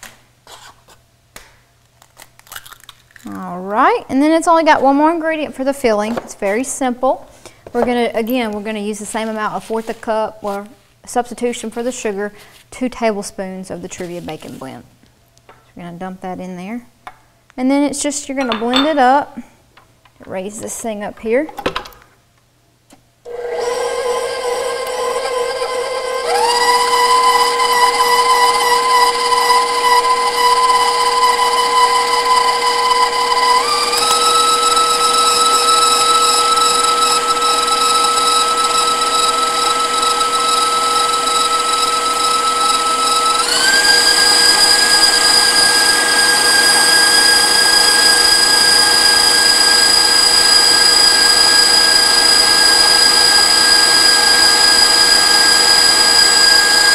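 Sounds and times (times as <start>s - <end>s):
electric mixer whining: 23.3s - 56.9s.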